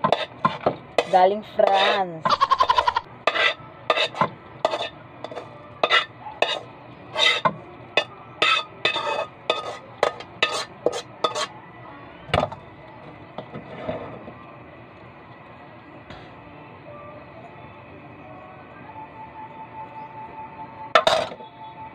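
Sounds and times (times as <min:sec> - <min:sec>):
ladle scraping and knocking pan: 0:00.0 - 0:11.5.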